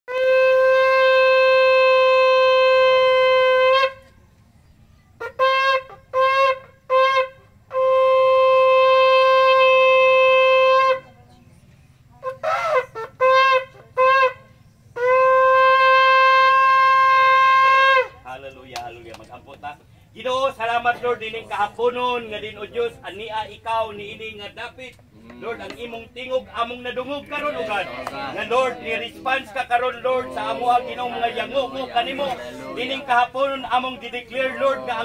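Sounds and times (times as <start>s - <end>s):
shofar blasts: 0.1s - 4.2s, 5.2s - 11.2s, 12.2s - 18.3s, 27.1s - 35.0s.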